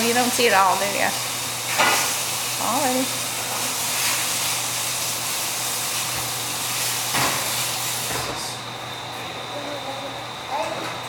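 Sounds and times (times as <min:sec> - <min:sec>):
food sizzling in a frying pan: 0:00.0 - 0:08.5.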